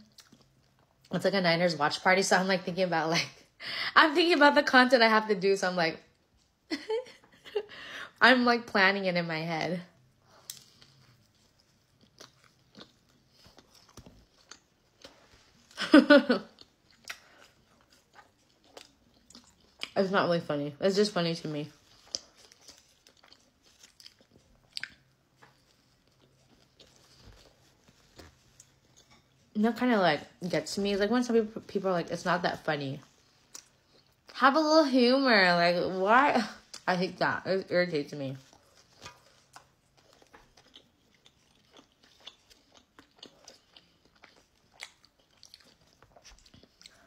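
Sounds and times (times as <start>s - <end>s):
chewing sandwich crunches: 10.0s - 15.8s, 16.4s - 20.0s, 21.7s - 29.5s, 38.4s - 47.0s.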